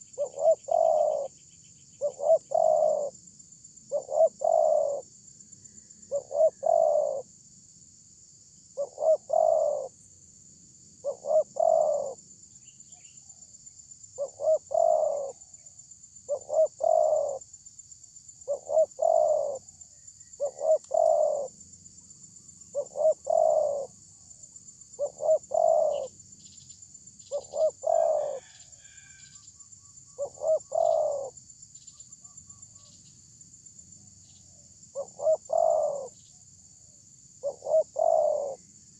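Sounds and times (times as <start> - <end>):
dove cooing: 0.0 - 1.4, 2.0 - 3.2, 3.9 - 5.1, 6.1 - 7.3, 8.8 - 10.0, 11.0 - 12.2, 14.2 - 15.5, 16.3 - 17.4, 18.4 - 21.6, 22.7 - 24.0, 25.0 - 26.2, 27.3 - 29.2, 30.2 - 31.4, 34.9 - 36.2, 37.4 - 38.7.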